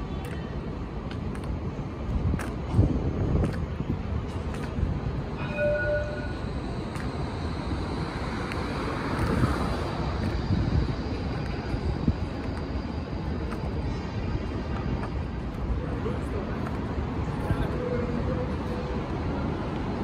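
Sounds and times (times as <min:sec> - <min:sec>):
tram wheels rumbling on rails: 0:00.0 - 0:20.0
short ringing tone: 0:05.4 - 0:06.5.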